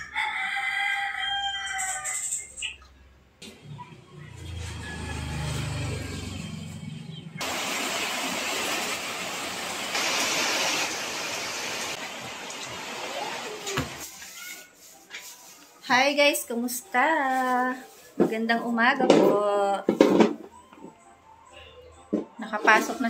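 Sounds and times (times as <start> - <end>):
rain hissing: 7.4 - 14.6.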